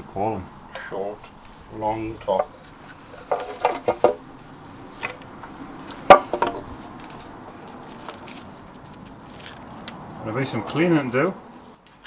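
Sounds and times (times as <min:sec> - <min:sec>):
metal parts clinking and clanking: 0:02.3 - 0:04.2, 0:05.0 - 0:09.6.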